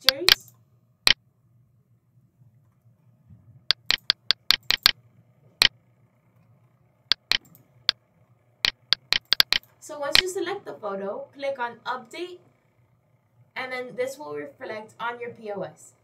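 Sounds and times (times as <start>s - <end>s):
computer mouse clicking: 0.0s - 0.5s, 3.7s - 5.0s, 7.1s - 7.6s, 8.7s - 10.3s.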